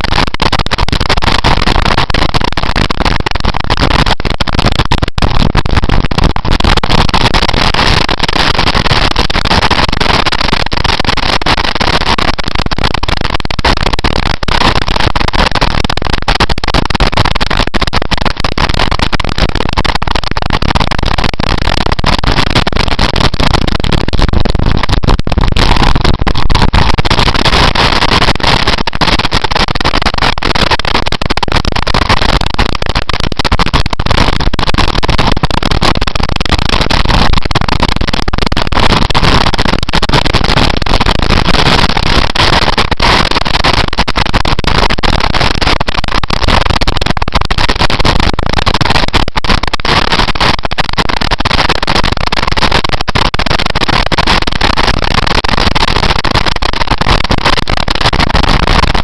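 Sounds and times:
wind rushing over microphone: 0:19.4 - 0:29.8.

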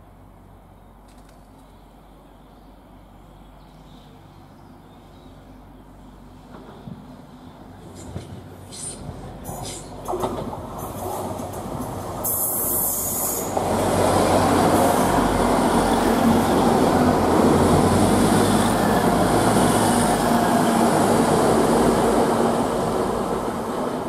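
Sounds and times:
diesel train engines: 0:00.0 - 0:24.0
train wheels rumbling on rails: 0:06.4 - 0:24.0.

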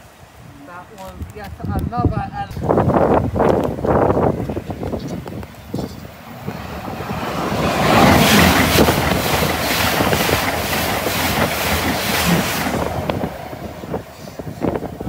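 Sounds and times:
train passing at speed: 0:02.9 - 0:15.0
wheels clattering: 0:04.4 - 0:13.4.

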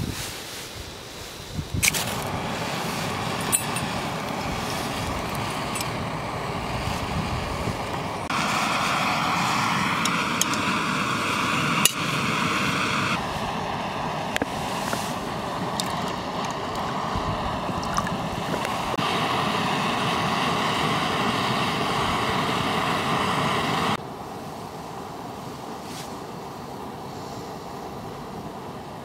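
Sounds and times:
gas stove hissing: 0:00.9 - 0:29.0
metallic clinks: 0:03.4 - 0:04.0.

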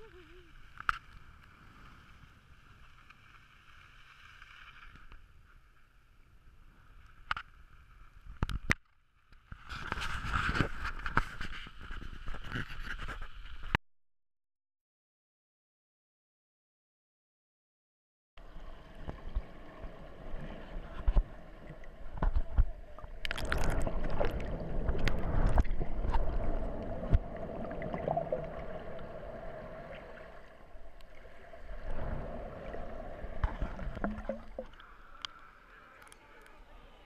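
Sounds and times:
water rushing and sloshing: 0:18.4 - 0:35.8.

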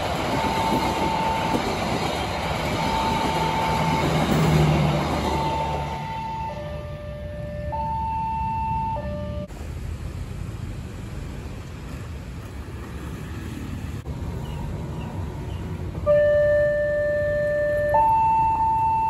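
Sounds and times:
level crossing warning alarm: 0:00.0 - 0:09.5, 0:16.0 - 0:19.0
motorcycles and traffic rumbling: 0:00.0 - 0:19.0.

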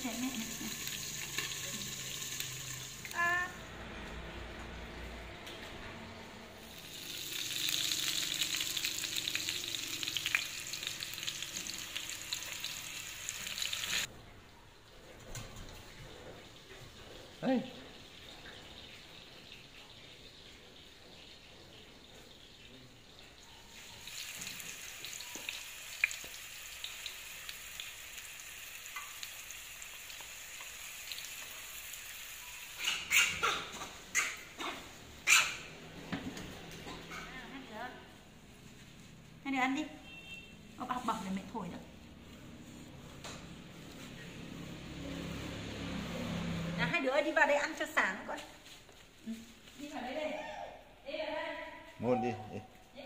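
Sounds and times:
slices frying in hot oil: 0:00.0 - 0:03.5, 0:06.6 - 0:14.1, 0:16.4 - 0:34.4.

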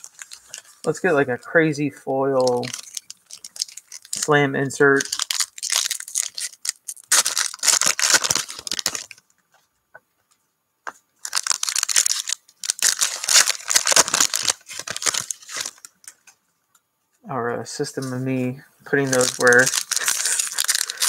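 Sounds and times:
foil wrappers tearing and crinkling: 0:00.0 - 0:01.2, 0:02.4 - 0:09.2, 0:11.2 - 0:16.2, 0:19.0 - 0:21.0.

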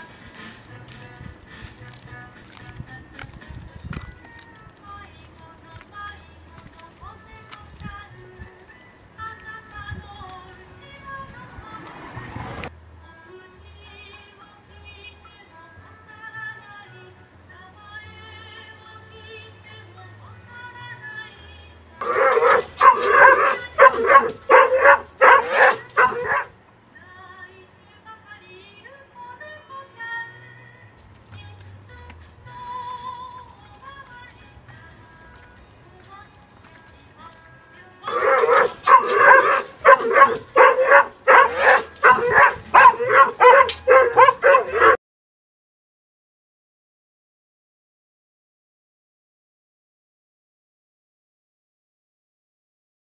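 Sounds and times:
dog barking: 0:22.0 - 0:26.5, 0:38.1 - 0:45.0.

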